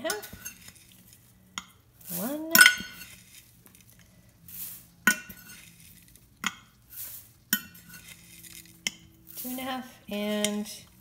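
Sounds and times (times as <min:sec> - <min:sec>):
oats rustling into metal pan: 0:00.0 - 0:11.0
glass cup and jar clinking: 0:02.5 - 0:03.2.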